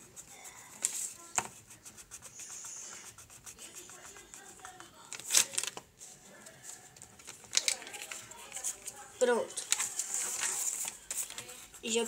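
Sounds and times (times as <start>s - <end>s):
pencil scratching on paper: 0.0s - 5.1s, 9.7s - 12.0s.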